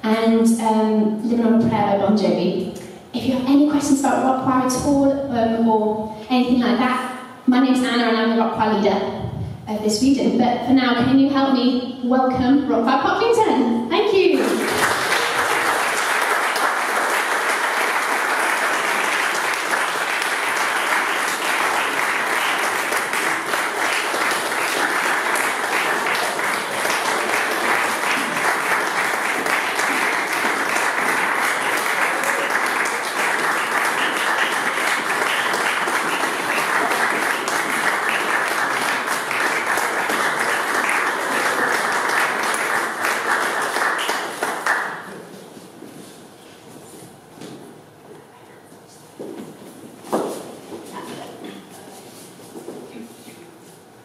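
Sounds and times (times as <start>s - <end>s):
audience clapping: 14.3s - 45.6s.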